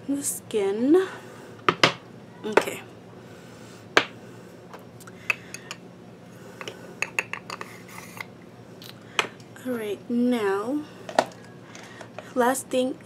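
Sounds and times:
makeup containers clicking: 7.0s - 7.7s.

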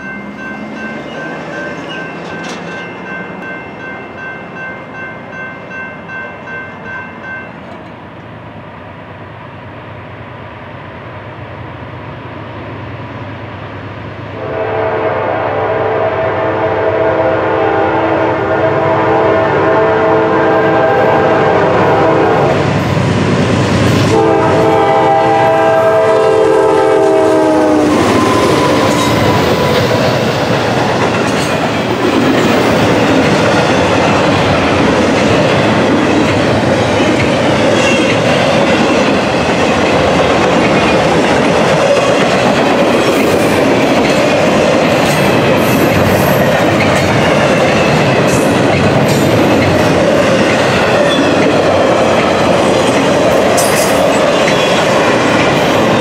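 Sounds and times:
train cars rumbling and clattering: 0.0s - 8.8s, 16.7s - 56.0s
locomotive horn blasts: 14.4s - 22.6s, 24.0s - 29.8s.

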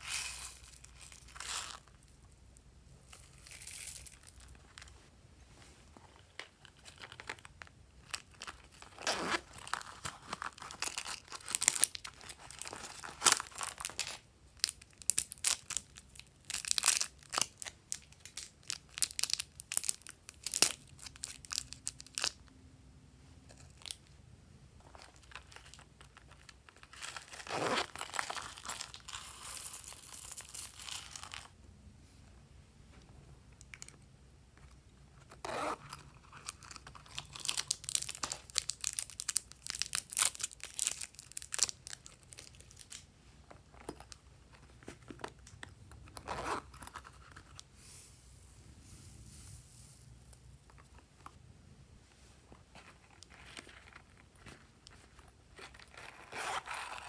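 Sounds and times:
plastic packaging crinkling: 36.3s - 43.0s.

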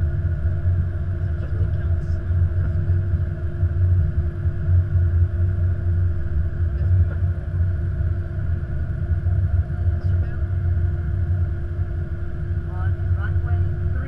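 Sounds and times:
airliner cockpit rumble: 0.0s - 14.0s.

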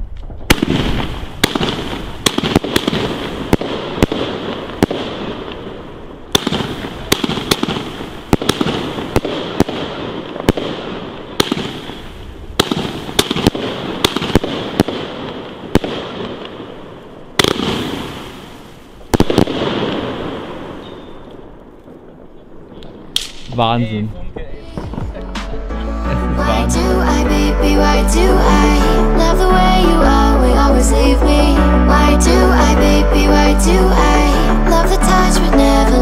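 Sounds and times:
firework crackling hiss: 0.0s - 21.2s
louder firework volleys: 0.0s - 23.6s
firework shots: 0.0s - 23.7s.

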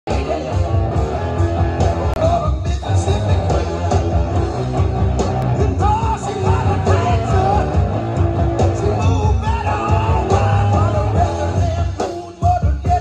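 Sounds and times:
rock song over loudspeakers: 0.1s - 13.0s.

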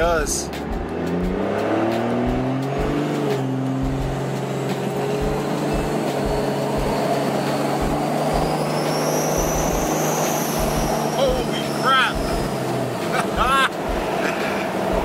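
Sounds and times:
diesel engine drone: 0.0s - 15.0s
turbo whistle rising in pitch: 5.2s - 12.6s.

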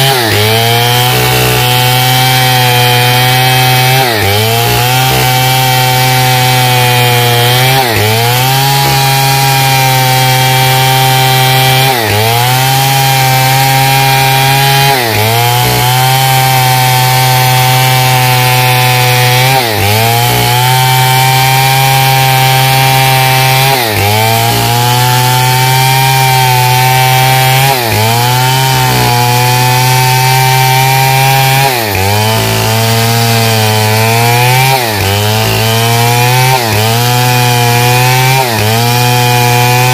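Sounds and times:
chainsaw cutting log: 0.0s - 39.9s.

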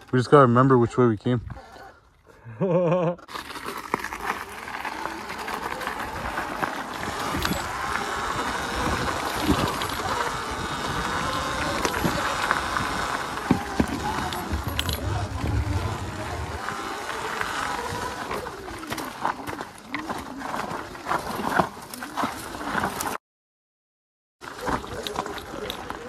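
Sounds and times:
stones clicking and rattles: 3.3s - 16.7s
tyre and wind noise: 3.4s - 23.2s.

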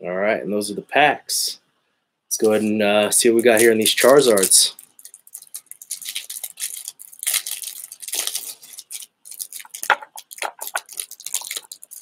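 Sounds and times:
plastic wrapping crinkling: 2.4s - 12.0s.

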